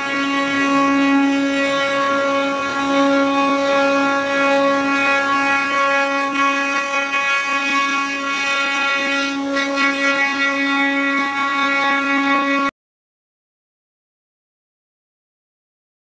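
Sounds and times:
router spindles whining: 0.0s - 12.7s.

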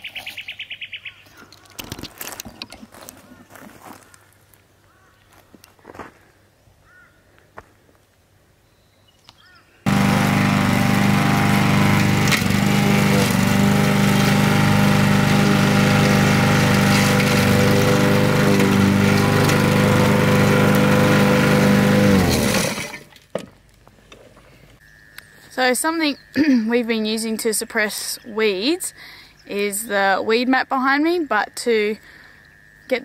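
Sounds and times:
lawn mower engine running: 9.9s - 23.2s.

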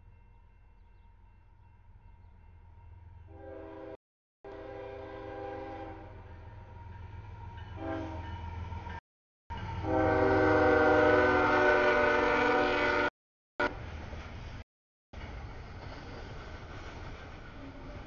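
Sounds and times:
low rumble of locomotive: 0.0s - 14.6s, 15.2s - 18.0s
locomotive horn blasts: 3.3s - 6.3s, 7.7s - 8.3s, 9.8s - 13.7s.

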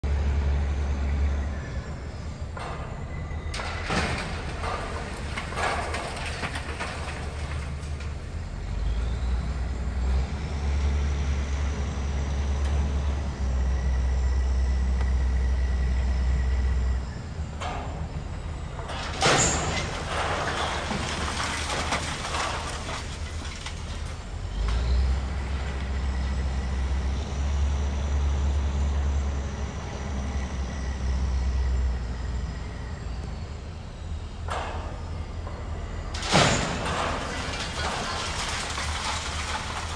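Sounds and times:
heavy machinery engine rumble: 0.0s - 39.9s
debris crashing and rattling: 2.5s - 9.8s, 17.6s - 26.3s, 34.5s - 39.9s.

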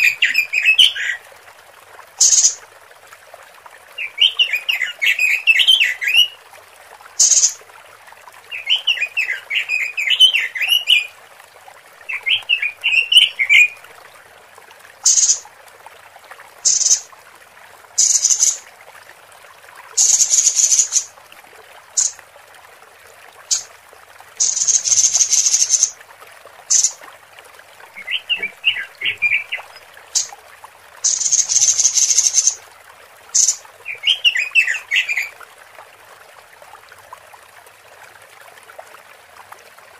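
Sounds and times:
bird warbled chattering: 2.2s - 2.6s, 7.2s - 7.6s, 15.1s - 15.4s, 16.7s - 17.0s, 18.0s - 18.6s, 20.0s - 21.1s, 22.0s - 22.2s, 24.4s - 25.9s, 26.7s - 27.0s, 28.0s - 30.3s, 31.0s - 32.6s, 33.4s - 33.6s.

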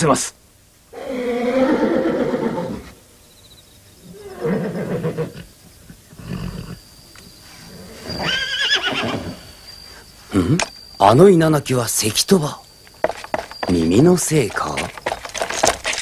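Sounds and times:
horse whinnying: 0.9s - 3.0s, 4.0s - 6.9s, 7.7s - 9.5s.

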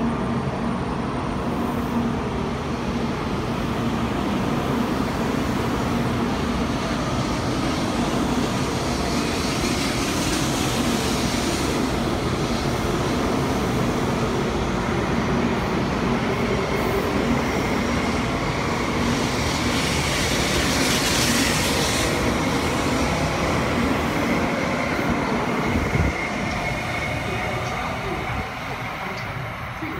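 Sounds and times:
train wheels and air rushing: 0.0s - 29.9s.

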